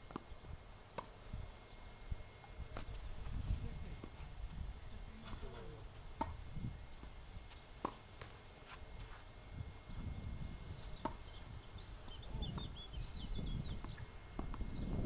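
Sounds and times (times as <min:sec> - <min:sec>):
low outdoor rumble: 0:00.0 - 0:15.0
tennis ball knocks: 0:06.2 - 0:06.4, 0:11.0 - 0:11.2.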